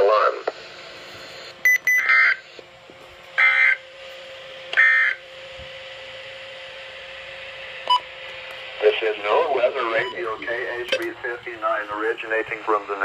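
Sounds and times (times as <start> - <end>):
data bursts on weather radio: 1.3 - 2.6, 3.4 - 3.8, 4.8 - 5.2, 8.8 - 13.0.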